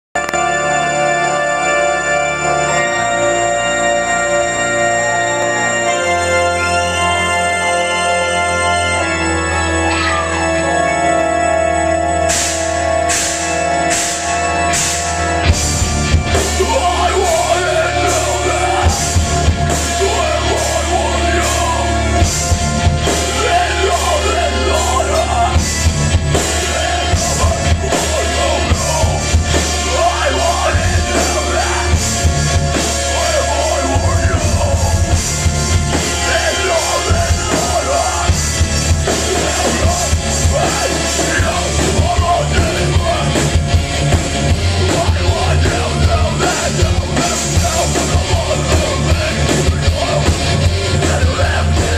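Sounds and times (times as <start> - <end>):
bass guitar: 0.0 - 51.9
distorted electric guitars: 0.1 - 51.9
drum kit: 12.1 - 51.9.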